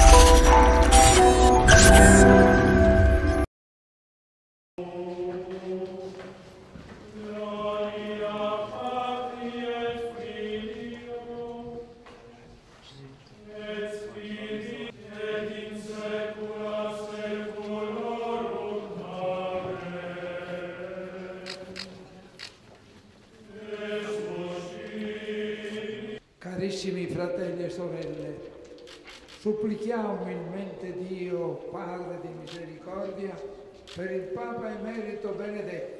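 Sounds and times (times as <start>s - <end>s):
group singing unaccompanied chant: 4.8s - 12.1s, 13.4s - 22.3s, 23.4s - 26.2s.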